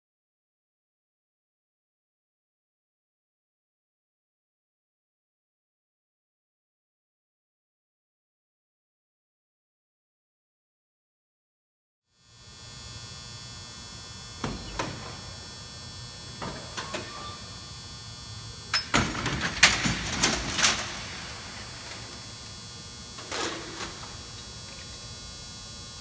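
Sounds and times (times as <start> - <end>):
steady hum: 12.2 - 26.0.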